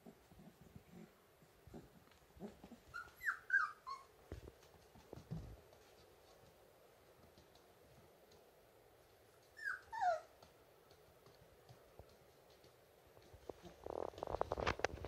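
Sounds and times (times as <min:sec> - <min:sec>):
puppies whimpering squeaks: 0:02.8 - 0:04.2, 0:09.6 - 0:10.3
soft scuffling thumps: 0:04.2 - 0:06.6.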